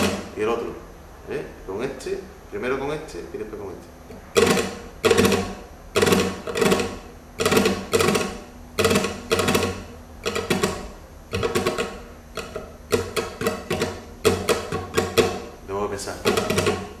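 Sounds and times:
flamenco guitar strumming: 0.0 - 0.4, 4.3 - 15.6, 16.2 - 17.0.

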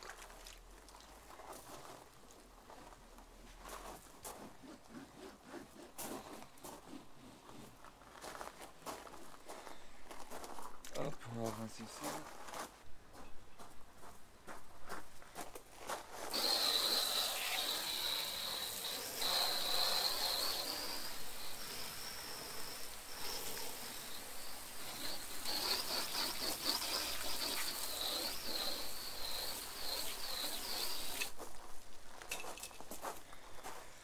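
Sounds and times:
wavering high whistle: 16.3 - 31.3
hose nozzle spraying water: 16.3 - 31.4.

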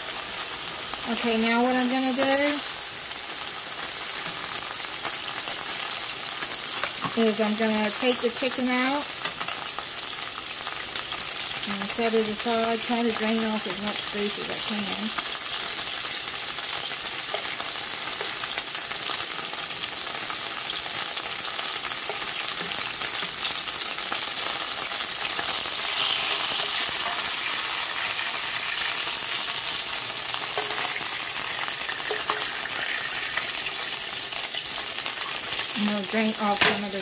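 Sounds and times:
chicken sizzling in oil: 0.0 - 37.0
spoon moving through pan: 30.3 - 33.6.

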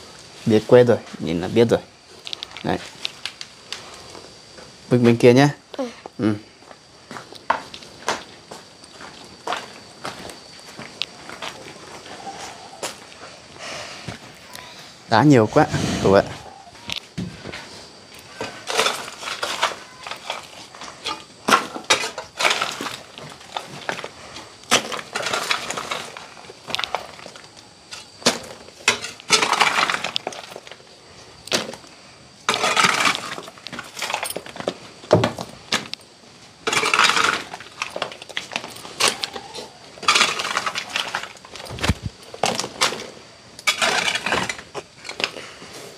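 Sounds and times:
stones scraped across floor: 32.5 - 34.2.

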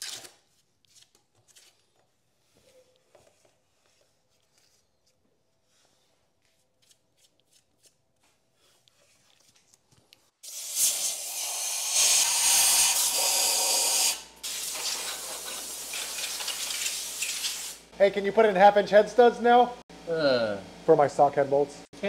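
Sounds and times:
compressed air blast hissing: 10.4 - 17.9.

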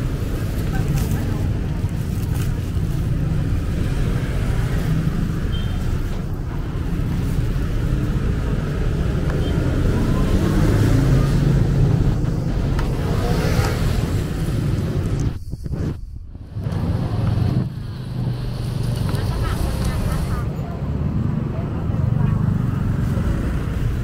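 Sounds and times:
low rumble of road traffic: 0.0 - 24.0.

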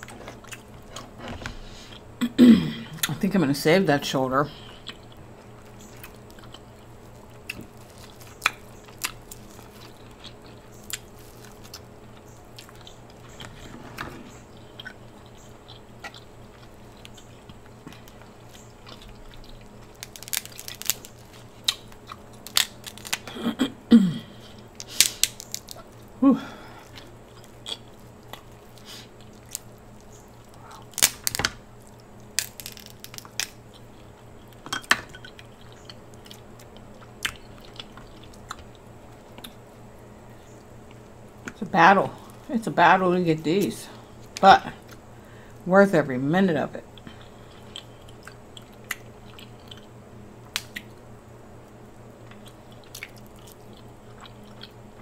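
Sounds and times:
close-up chewing: 0.0 - 2.1, 4.6 - 23.4, 24.3 - 41.6, 46.9 - 51.0, 51.7 - 55.0
crab shells cracking: 4.9 - 13.4, 14.6 - 23.3, 24.5 - 26.2, 26.8 - 39.6, 47.0 - 51.0
person humming: 26.2 - 26.8.

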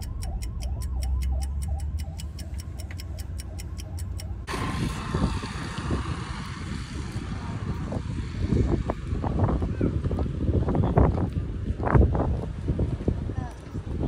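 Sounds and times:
turn signal ticking: 0.0 - 4.5
low road rumble: 0.0 - 14.0
wind buffeting microphone: 4.4 - 14.0.

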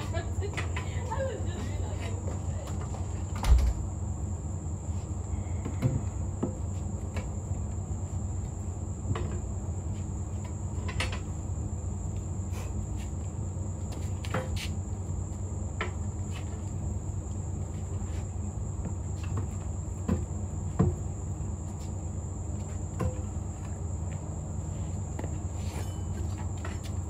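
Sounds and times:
crickets chirring: 0.0 - 27.0
tire irons clinking on metal: 25.6 - 26.8.

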